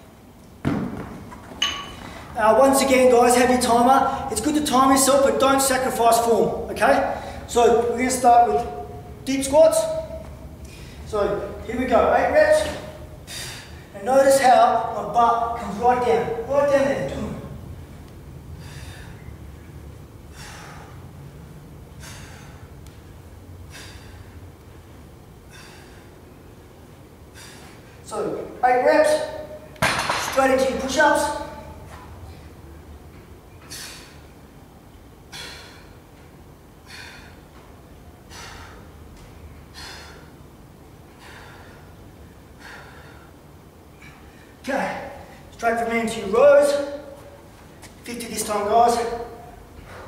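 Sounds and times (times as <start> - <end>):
steady low hum: 0.0 - 50.0
man breathing forcefully: 10.6 - 11.1, 13.0 - 13.9, 18.5 - 19.4, 20.2 - 24.6, 25.4 - 26.6, 27.2 - 28.0, 33.7 - 34.4, 35.1 - 44.6
man breathing out hard: 23.6 - 24.4, 25.4 - 26.2, 36.8 - 37.5.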